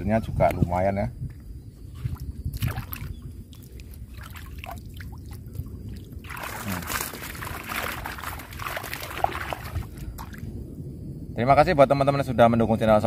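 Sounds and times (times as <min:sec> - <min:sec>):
water splashing and sloshing: 0:01.9 - 0:10.6
water pouring through netting: 0:02.6 - 0:10.5.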